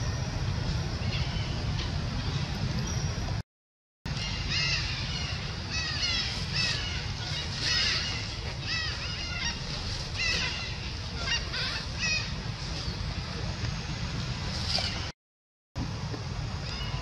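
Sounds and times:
steady low rumble: 0.0 - 3.4, 4.1 - 15.1
monkeys giving squeaky calls: 4.2 - 12.4.

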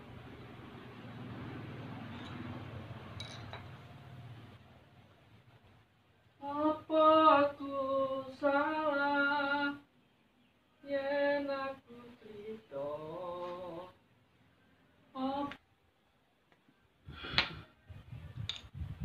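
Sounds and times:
woman singing: 6.4 - 9.8, 15.2 - 15.6.

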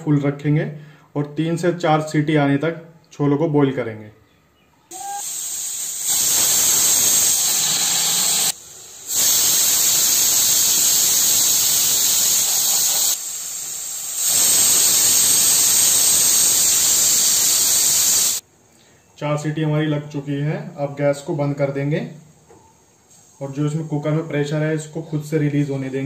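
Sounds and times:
pressure cooker steam hiss: 4.9 - 18.4.

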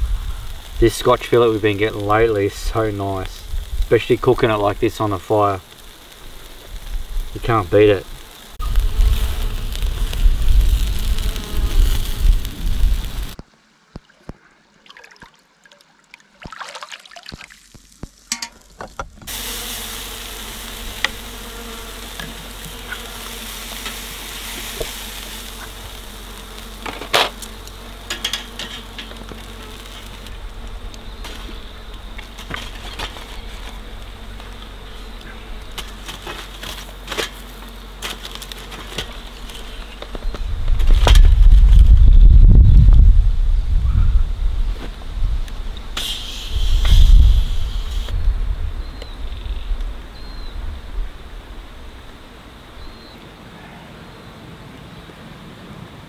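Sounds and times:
wind rumble on microphone: 0.0 - 0.9, 2.2 - 4.8, 6.6 - 13.4, 40.0 - 52.2
steak sizzling on grill: 0.0 - 13.4, 17.7 - 39.8, 46.0 - 48.2
fire crackling: 0.0 - 14.4, 17.3 - 53.0.

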